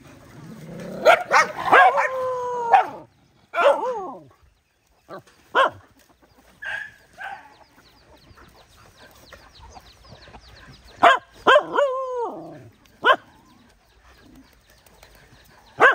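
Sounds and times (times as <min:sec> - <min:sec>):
dog barking: 0:01.0 - 0:04.2, 0:05.5 - 0:05.8, 0:06.6 - 0:07.6, 0:11.0 - 0:12.0, 0:13.0 - 0:13.3.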